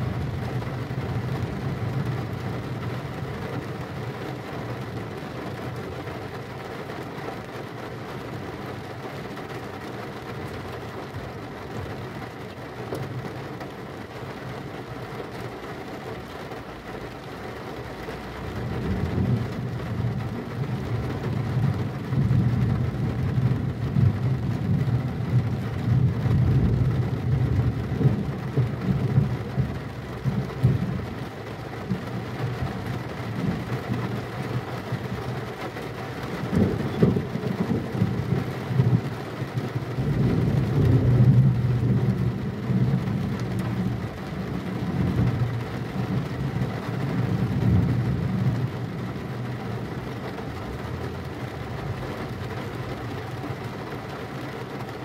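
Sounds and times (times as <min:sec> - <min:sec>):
steady rain: 0:00.0 - 0:55.0
low rumble of thunder: 0:18.5 - 0:35.6, 0:36.2 - 0:53.8.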